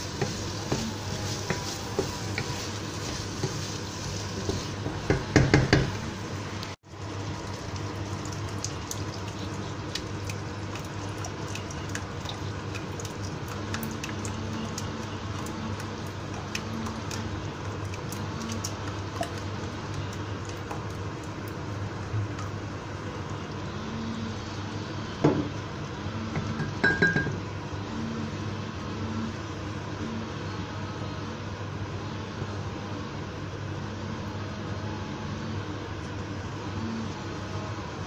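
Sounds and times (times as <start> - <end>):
wooden spoon scraping frying pan: 0.0 - 5.2
pan sizzling and crackling: 0.0 - 22.7
sauce pouring: 6.9 - 21.8.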